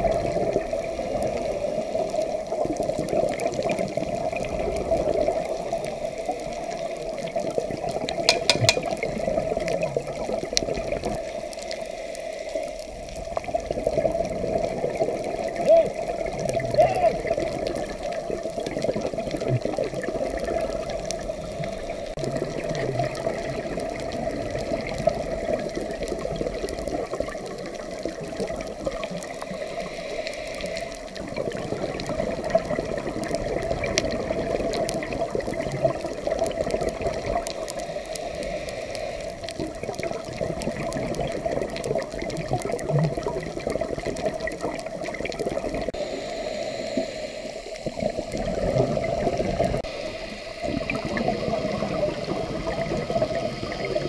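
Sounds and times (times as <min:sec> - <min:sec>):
muffled underwater rush: 0:00.0 - 0:54.0.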